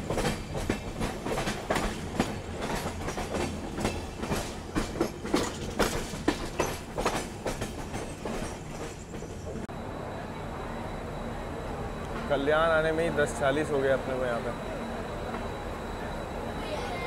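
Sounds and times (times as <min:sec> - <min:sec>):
train wheels clattering over rail joints: 0:00.0 - 0:09.7
steady train rumble: 0:00.0 - 0:17.0.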